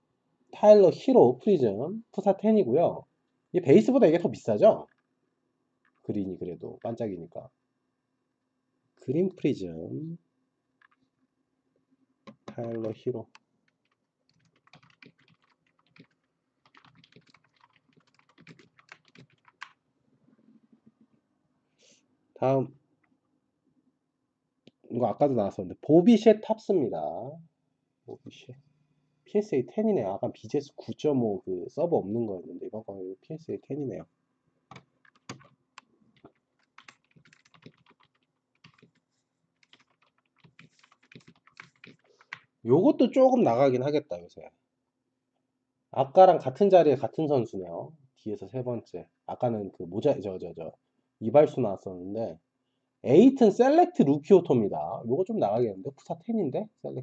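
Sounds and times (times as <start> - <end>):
typing on computer keyboard: 10.8 - 11.0, 12.3 - 19.8, 34.7 - 42.5.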